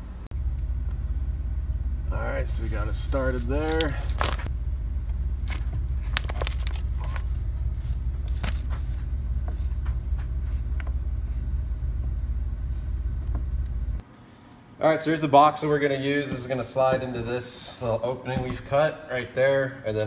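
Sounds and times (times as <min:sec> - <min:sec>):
steady low rumble: 0:00.0 - 0:14.1.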